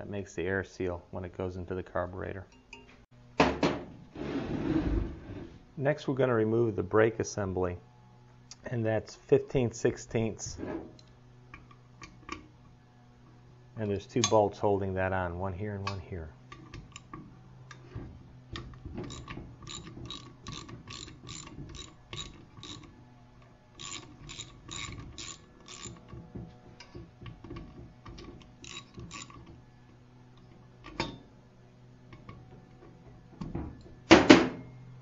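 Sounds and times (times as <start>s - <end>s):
ratchet wrench clicking: 19.1s - 22.9s, 23.8s - 26.0s, 28.6s - 29.4s.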